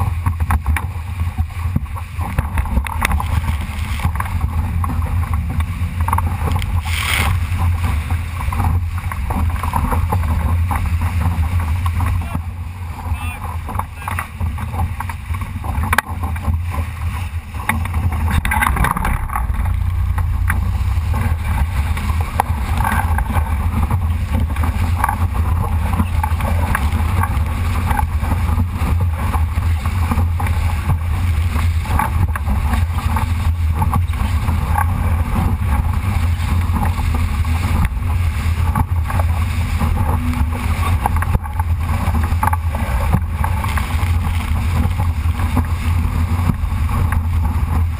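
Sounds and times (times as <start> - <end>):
water slapping against hull: 0.0 - 47.9
wind buffeting microphone: 0.0 - 47.9.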